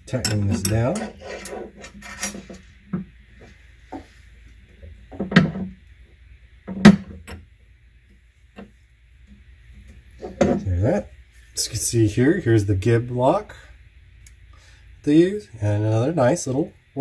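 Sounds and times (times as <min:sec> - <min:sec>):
small parts set on bench: 0:00.1 - 0:06.0.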